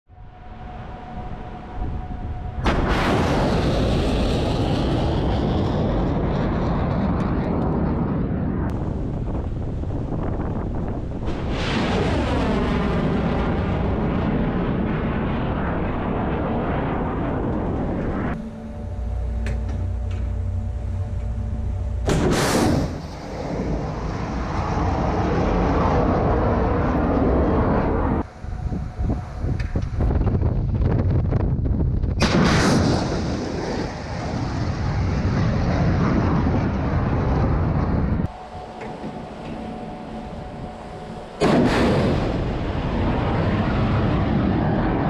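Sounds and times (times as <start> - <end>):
wind on microphone: 0.1 - 20.3, 22.1 - 45.0
low ship hum: 0.1 - 32.4, 33.0 - 45.0
steady rumble: 0.1 - 45.0
missile launch blast: 2.6 - 9.5, 11.1 - 18.4, 22.0 - 28.2, 32.1 - 38.3, 41.3 - 45.0
rocket motor roaring: 2.6 - 31.4.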